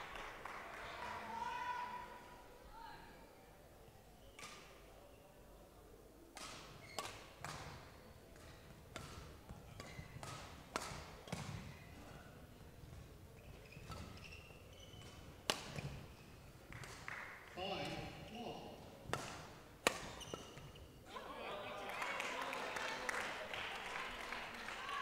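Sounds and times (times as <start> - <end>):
racket hitting shuttlecock: 6.4 - 12.3, 15.0 - 16.0, 19.1 - 20.7
shoe squeaks on court: 6.8 - 7.2, 9.8 - 10.2, 13.3 - 16.5, 19.9 - 21.0.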